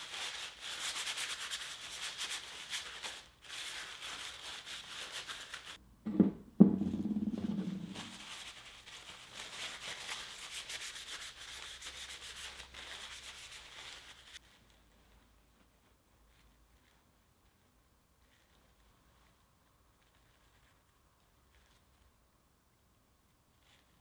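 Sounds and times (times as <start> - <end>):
paper towel rubbing on metal: 0.0 - 5.8, 7.6 - 14.4
metal handle knocking on wood: 6.1 - 7.8.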